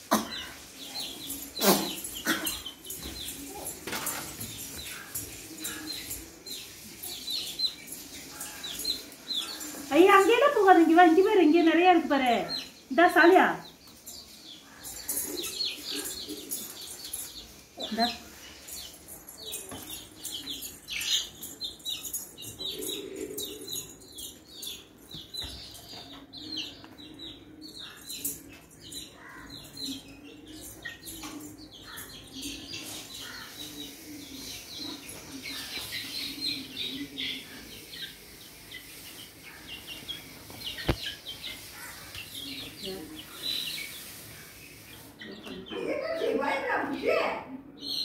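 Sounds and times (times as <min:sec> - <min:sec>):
chicks peeping: 0:00.1 - 0:48.0.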